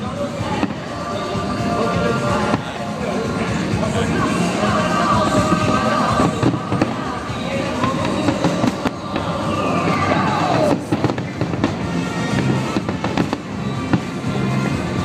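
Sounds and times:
fireworks bursting: 0.0 - 15.0
fireworks crackling: 0.0 - 15.0
music playing: 0.0 - 15.0.

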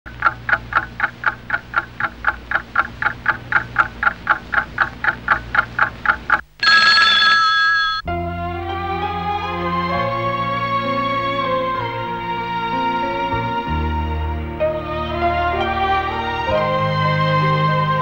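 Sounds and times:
loud sustained chord: 8.0 - 18.0.

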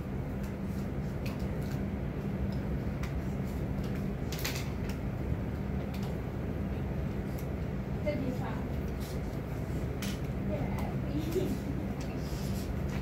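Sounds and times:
steady low hum: 0.0 - 13.0
pens writing clicks and rustle: 0.3 - 5.0, 5.6 - 6.2, 7.2 - 7.6.

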